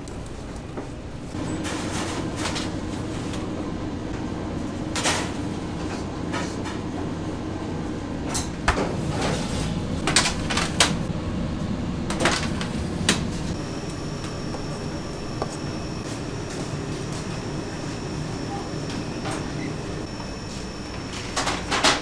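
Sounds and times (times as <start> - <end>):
low machine hum: 0.0 - 22.0
trays and utensils clattering: 5.0 - 6.9, 8.3 - 11.1, 21.1 - 22.0.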